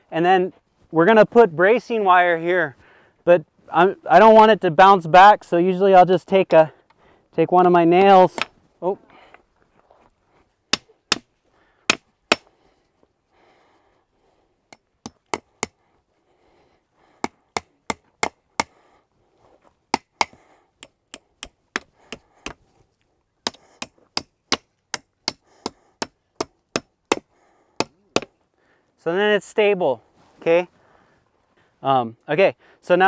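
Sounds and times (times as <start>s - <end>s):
hammer driving nails into wood: 10.7s - 11.3s, 11.9s - 12.5s, 14.7s - 15.8s, 19.9s - 22.6s, 23.4s - 28.3s.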